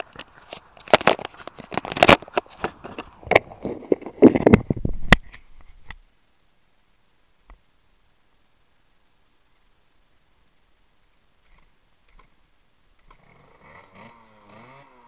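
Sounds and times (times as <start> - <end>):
camera handling noise: 0.0 - 5.7.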